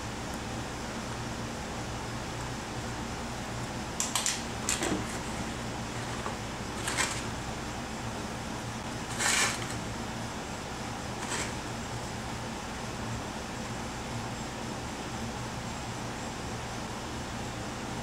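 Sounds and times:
steady low hum: 0:00.0 - 0:18.0
plastic jug scraping: 0:04.8 - 0:07.4, 0:09.0 - 0:09.8, 0:11.2 - 0:11.7.

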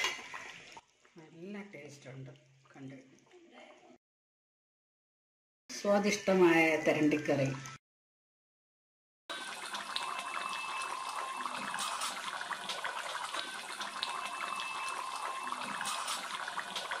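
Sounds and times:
curry bubbling and crackling in pan: 0:09.3 - 0:17.0.

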